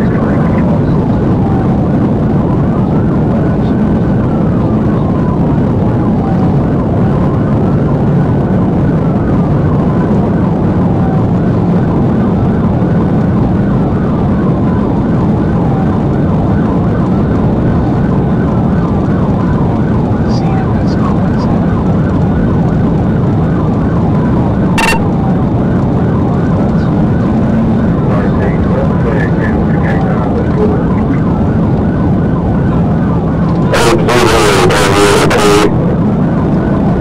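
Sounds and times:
police siren wailing: 0.0 - 37.0
road and engine rumble: 0.0 - 37.0.

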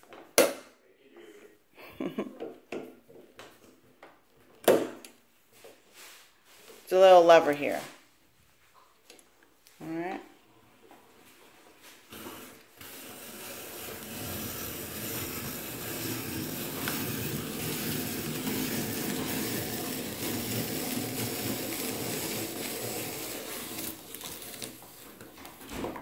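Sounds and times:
apple peeler grinding and cutting: 12.1 - 25.7.

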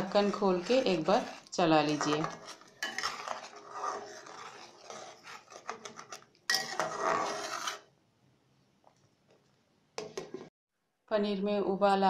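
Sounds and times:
metal ladle scraping a pan: 0.0 - 7.9.

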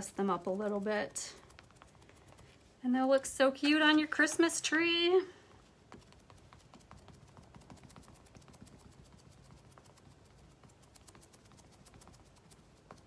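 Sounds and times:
paint applicator tapping: 0.6 - 2.6, 5.5 - 13.0.

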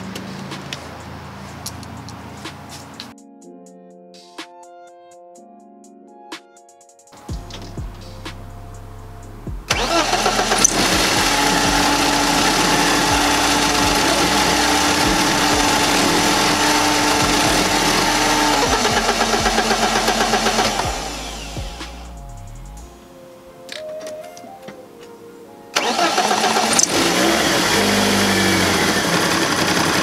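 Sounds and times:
starter motor whine: 9.7 - 21.6, 25.8 - 30.0
car engine starting and running rough: 9.7 - 22.0, 25.8 - 30.0.

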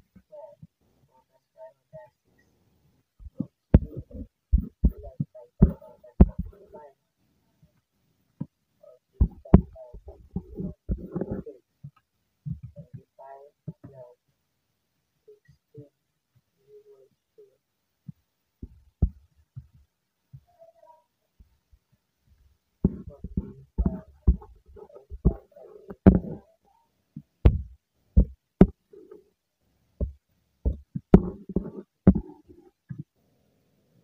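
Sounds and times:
tapping on touchscreen: 3.2 - 6.6, 9.2 - 12.9, 22.8 - 26.4, 30.0 - 33.0.

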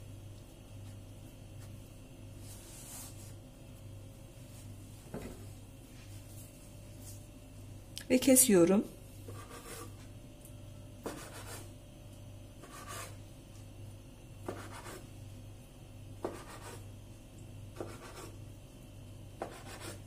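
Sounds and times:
knife scraping board: 9.3 - 10.0, 11.0 - 11.7, 12.6 - 13.2.

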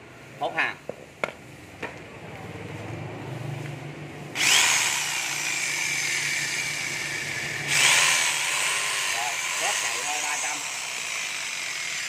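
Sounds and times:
electric jigsaw motor whine: 4.4 - 12.0.

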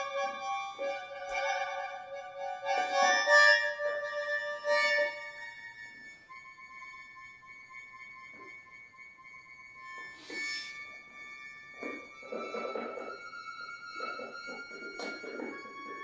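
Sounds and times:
accordion holding high notes: 0.0 - 6.4.

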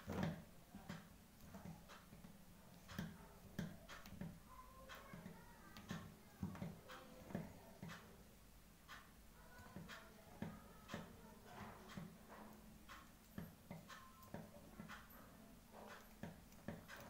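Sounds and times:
cable wires clicking and rustling: 8.9 - 17.0.

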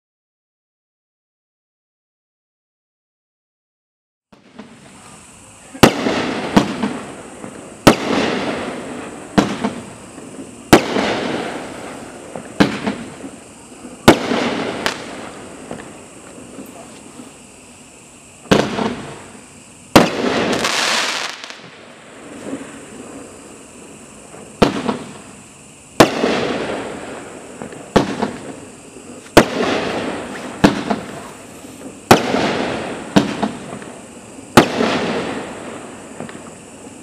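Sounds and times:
firework bangs: 4.3 - 37.0
firework crackle: 4.4 - 37.0.

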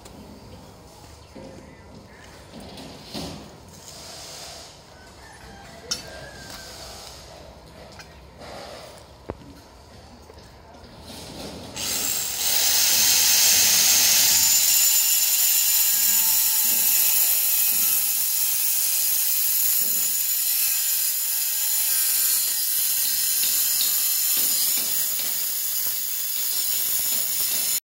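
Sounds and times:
angle grinder cutting tile: 11.8 - 27.8.

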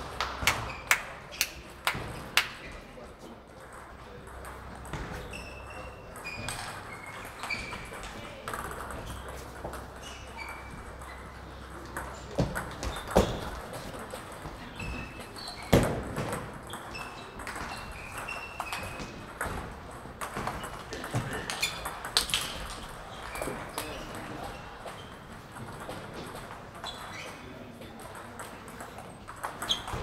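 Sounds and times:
table tennis ball hitting paddles: 0.1 - 2.7, 3.6 - 30.0
ball bouncing on table: 11.8 - 23.8.

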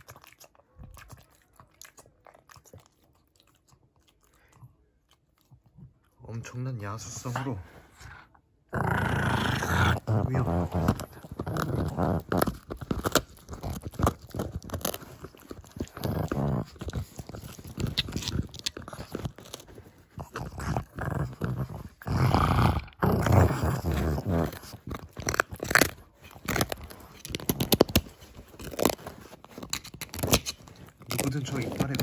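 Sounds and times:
dog chewing a hard bone: 0.0 - 6.2, 8.8 - 32.0
dog growling: 5.8 - 29.4, 30.0 - 32.0.

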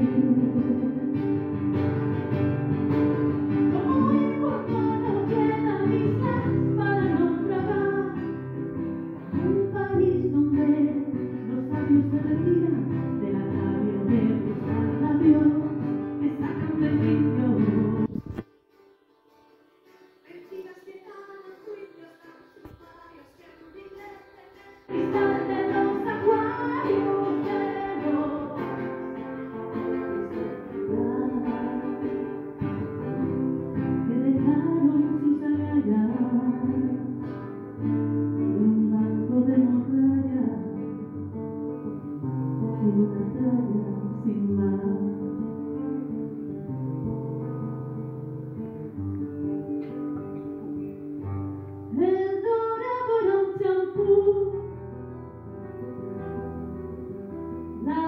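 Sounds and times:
woman singing: 0.0 - 1.7, 3.5 - 18.4, 20.2 - 41.3, 42.4 - 46.3, 51.9 - 54.8, 57.8 - 58.0
acoustic guitar: 0.0 - 58.0.

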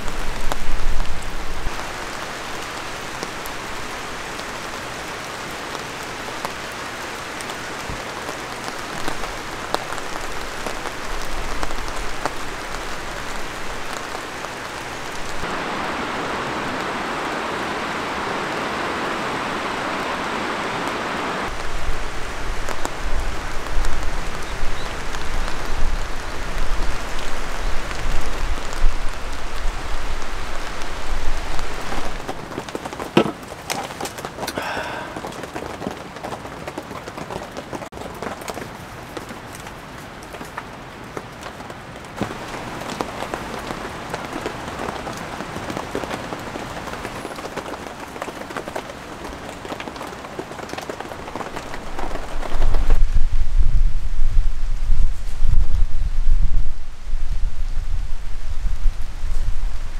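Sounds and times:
light rain hissing: 0.0 - 59.9
raindrop ticks: 7.4 - 15.5.

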